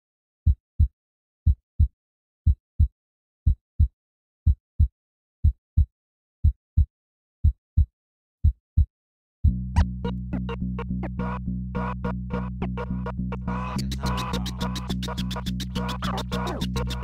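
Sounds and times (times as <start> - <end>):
deep heartbeat-like double thumps: 4.5 - 11.0.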